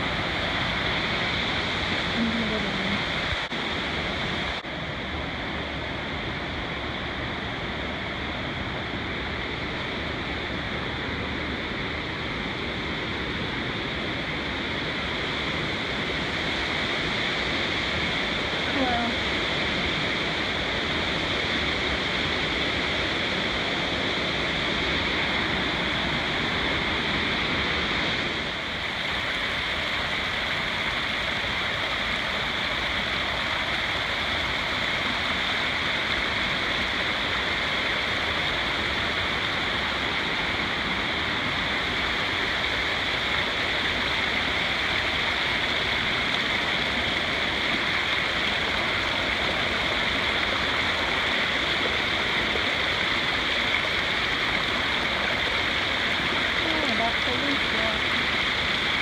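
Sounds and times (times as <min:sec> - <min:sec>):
creek rushing over rocks: 0:14.8 - 0:59.0.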